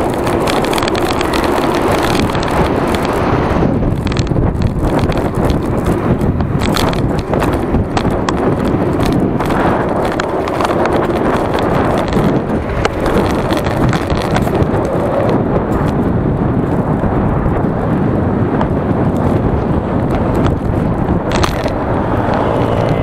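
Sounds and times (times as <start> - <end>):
bike clicks and rattles: 0.0 - 23.0
road rumble: 0.0 - 23.0
wind buffeting: 0.0 - 23.0.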